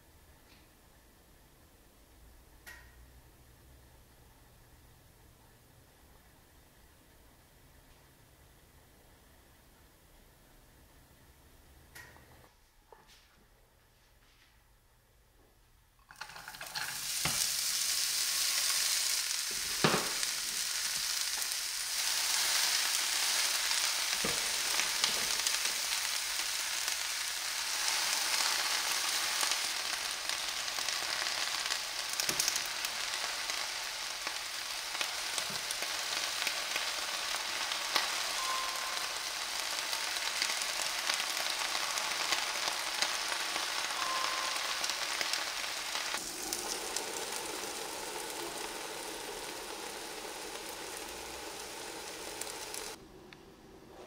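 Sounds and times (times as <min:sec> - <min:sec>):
vegetables sizzling in a frying pan: 0:16.1 - 0:53.0.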